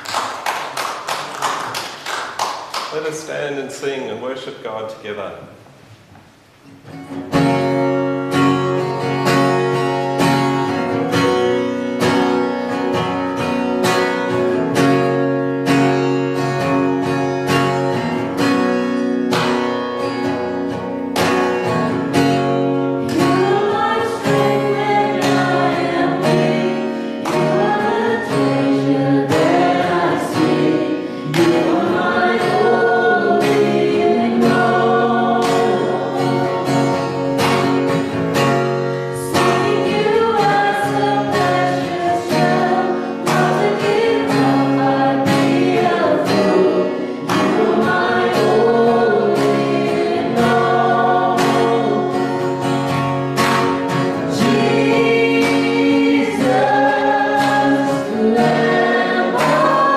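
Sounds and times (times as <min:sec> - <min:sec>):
acoustic guitar strumming: 0:05.9 - 0:59.9
woman singing: 0:23.1 - 0:36.7, 0:39.2 - 0:52.3, 0:54.4 - 0:59.9.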